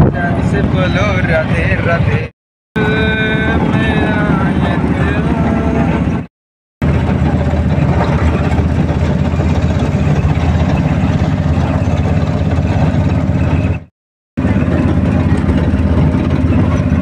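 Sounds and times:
vehicle engine running: 0.2 - 17.0
road and tyre noise: 5.8 - 17.0.

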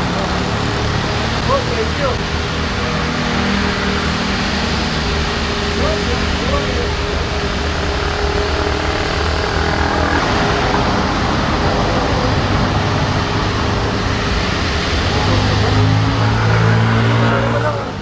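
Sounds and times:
jet engines roaring: 0.0 - 18.0.

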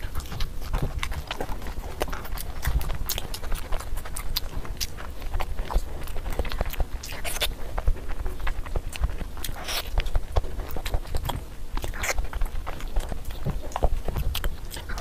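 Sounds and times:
close chewing and mouth smacks: 0.0 - 15.0.

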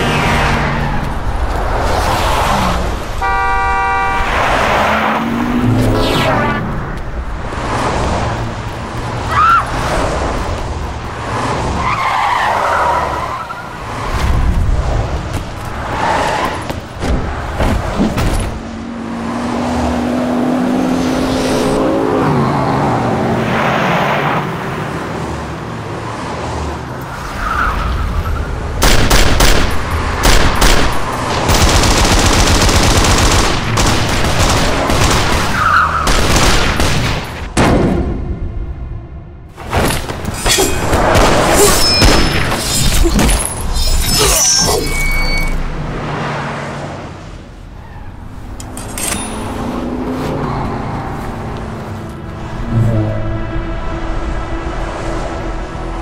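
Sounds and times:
rapid automatic gunfire: 31.5 - 37.2
tyres squealing: 40.3 - 45.7.

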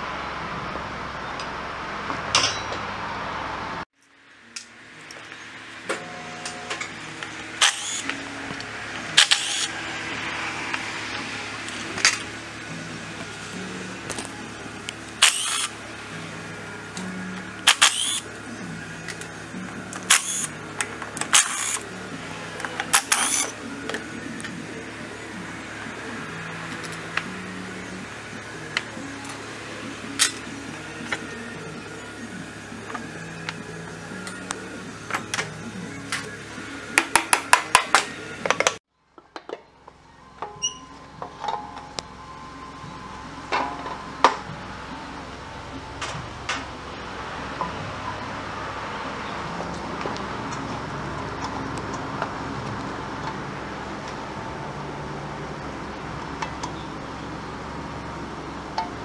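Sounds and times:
metal tools clinking and knocking: 2.3 - 2.8, 40.4 - 42.0
cordless driver spinning bolts: 6.4 - 9.9, 14.1 - 15.8, 16.9 - 18.3, 19.0 - 24.6.

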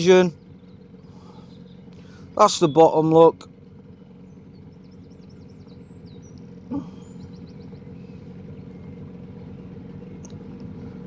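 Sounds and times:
faint bird chirps: 0.0 - 11.0
outboard motor humming: 0.0 - 11.0
brief vocal murmur: 6.7 - 7.2.

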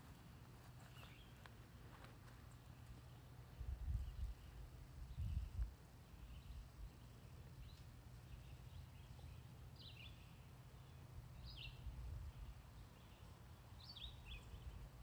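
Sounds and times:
faint bird chirps: 2.5 - 15.0.

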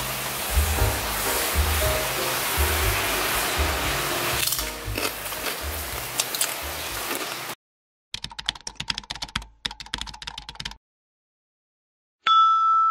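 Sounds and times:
background music: 0.0 - 7.3
keyboard typing clicks: 8.2 - 10.8.

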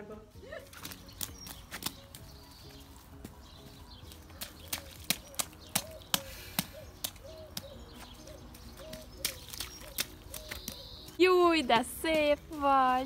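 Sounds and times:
rubber boots stomping in mud: 0.7 - 2.4, 3.2 - 11.2.

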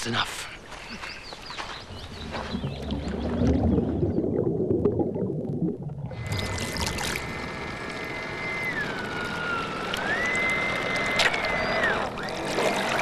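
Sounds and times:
small motor whining: 6.2 - 13.0.

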